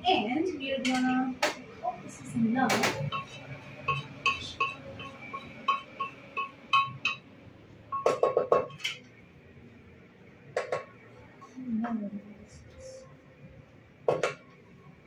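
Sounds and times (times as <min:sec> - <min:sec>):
metal spoon clinking on pot: 0:03.0 - 0:07.2.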